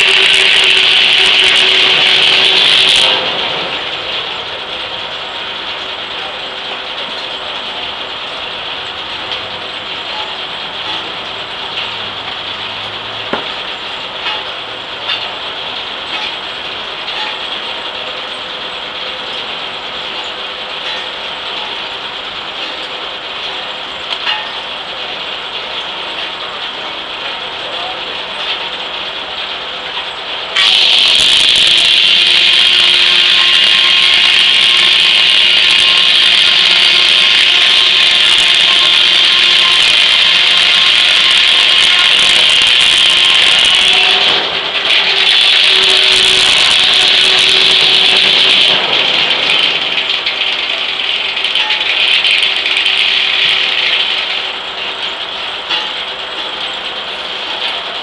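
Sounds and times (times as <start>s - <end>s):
circular saw ripping log: 0.0s - 3.8s, 30.6s - 54.4s
sawmill mechanical clatter: 0.0s - 58.0s.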